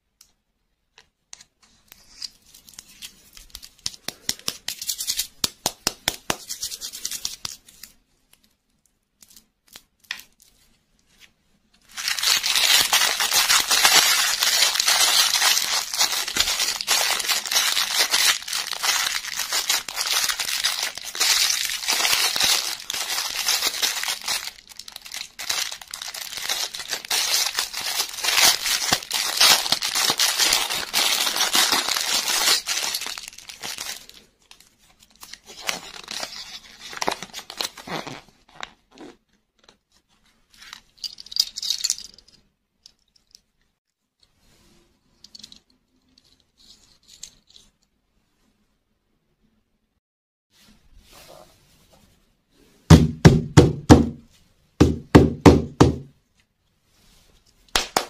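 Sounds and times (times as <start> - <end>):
plastic wrapping crinkling: 11.8 - 39.7.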